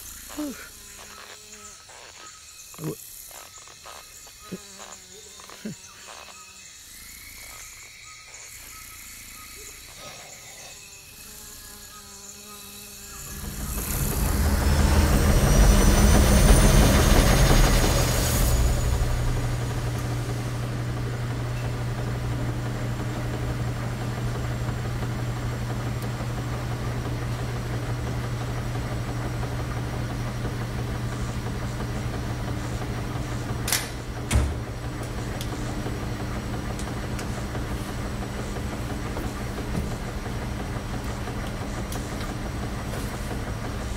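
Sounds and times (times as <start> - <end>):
washing machines humming: 12.9 - 43.9.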